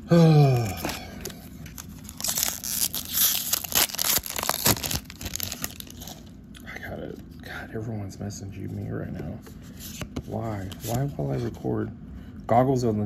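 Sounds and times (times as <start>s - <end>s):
foil wrapper crinkling and tearing: 0.5s - 6.3s.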